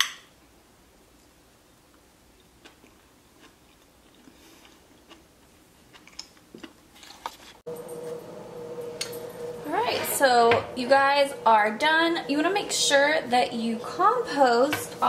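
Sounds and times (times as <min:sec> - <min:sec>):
person chewing with closed lips: 0:01.9 - 0:07.2.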